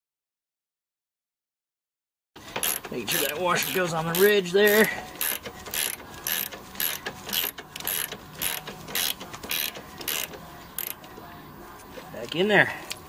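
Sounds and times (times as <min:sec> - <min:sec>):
socket ratchet clicking: 0:02.6 - 0:11.0.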